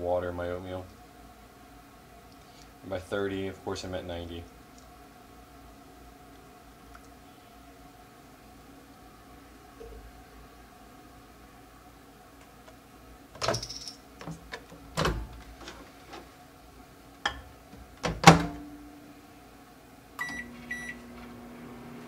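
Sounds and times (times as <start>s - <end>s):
microwave humming: 4.8s - 22.0s
microwave door clicks and knocks: 15.0s - 15.4s, 17.3s - 18.6s
microwave door clunk shutting: 18.0s - 18.6s
keypad beeps: 20.2s - 21.0s.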